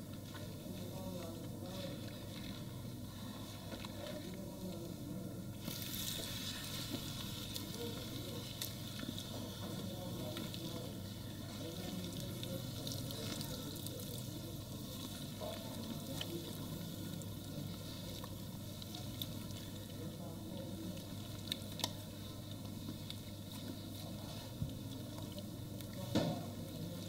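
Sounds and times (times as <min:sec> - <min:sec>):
hands scrubbing wet scalp: 0:05.6 - 0:20.0.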